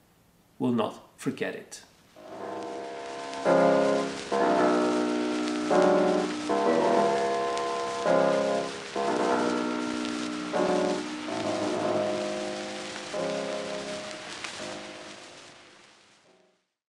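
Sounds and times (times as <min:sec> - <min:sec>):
steady rain-like hiss: 0:00.0 - 0:16.8
keyboard chords ringing: 0:02.2 - 0:15.3.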